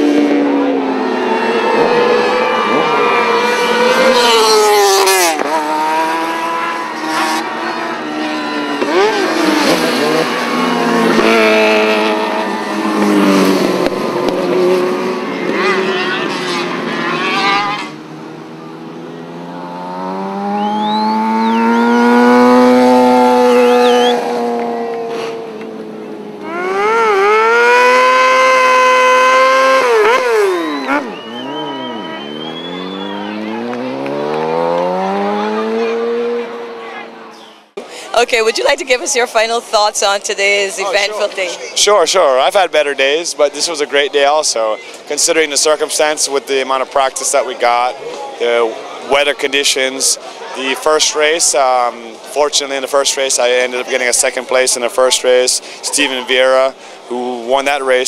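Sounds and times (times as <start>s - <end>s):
motorcycle engine revving: 0.0s - 37.8s.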